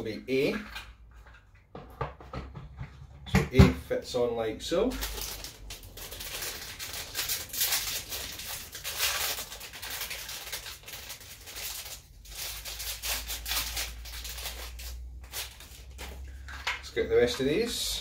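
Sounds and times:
plastic rustling and crinkling: 0:04.8 - 0:18.0.

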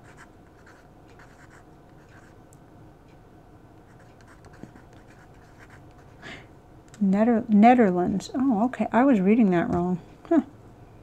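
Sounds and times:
pen scratching on paper: 0:00.0 - 0:02.3, 0:03.9 - 0:06.1.

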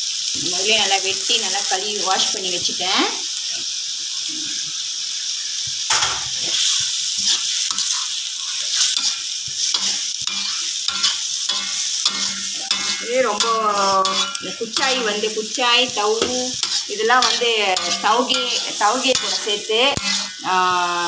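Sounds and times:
food sizzling in a wok: 0:00.0 - 0:21.0
metal spatula scraping a pan: 0:05.9 - 0:20.6.

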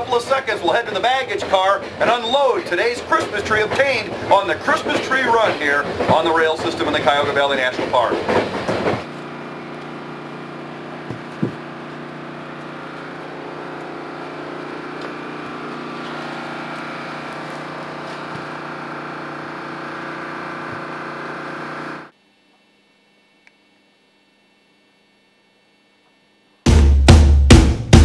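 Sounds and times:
diesel engine idling: 0:08.8 - 0:22.1
short knocks: 0:11.0 - 0:11.6.

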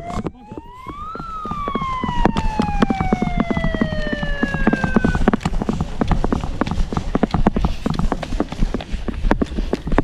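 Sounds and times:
siren winding up and down: 0:00.0 - 0:05.4.

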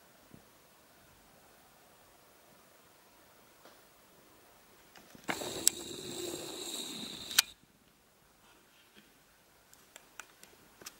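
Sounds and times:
camera zoom motor whirring: 0:05.3 - 0:07.6
zoom motor clicks: 0:05.3 - 0:07.6.

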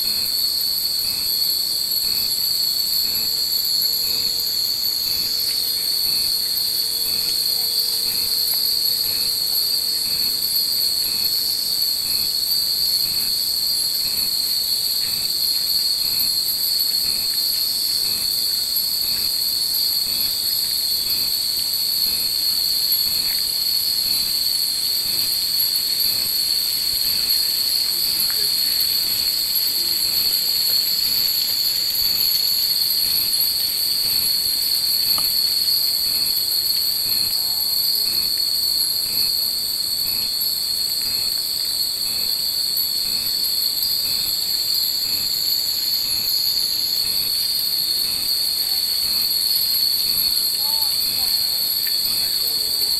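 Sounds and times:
cicadas droning: 0:00.0 - 0:52.9.

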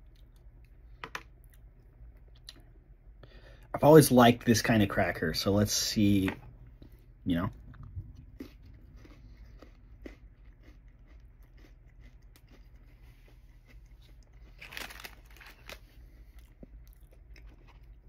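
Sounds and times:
person chewing crunchy food: 0:06.7 - 0:18.0.

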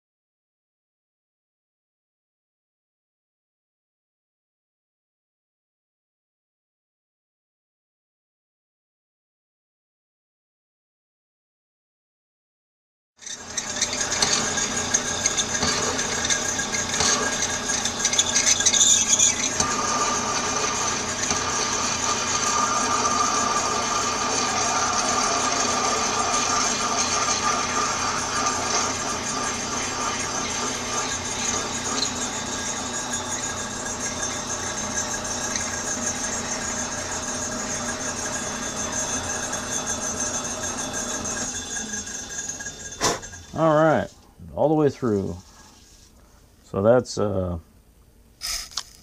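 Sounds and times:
drill cutting hiss: 0:13.2 - 0:44.1, 0:48.4 - 0:49.0
metal lathe running: 0:13.2 - 0:44.1
faint machine whine: 0:13.2 - 0:49.0.

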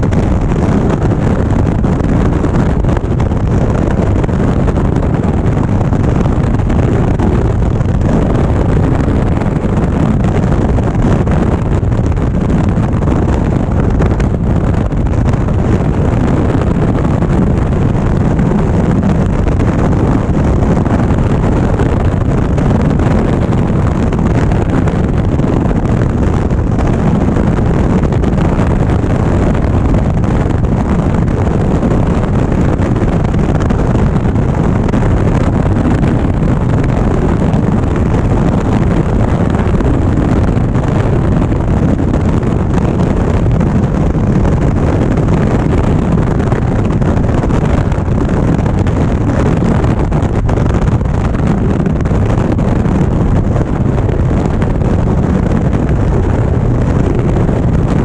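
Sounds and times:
motorcycle engine and road drone: 0:00.0 - 0:58.0
wind rushing over microphone: 0:00.0 - 0:58.0.

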